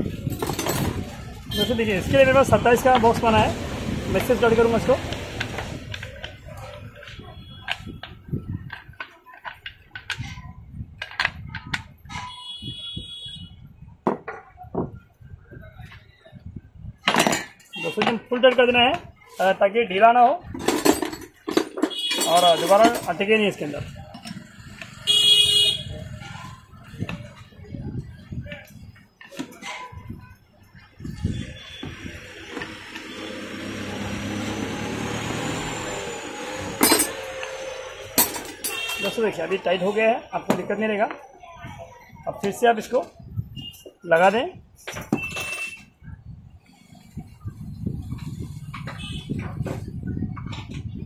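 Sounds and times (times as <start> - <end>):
metal knocks and clinks: 0.1 - 1.1, 20.5 - 23.2, 36.7 - 39.2.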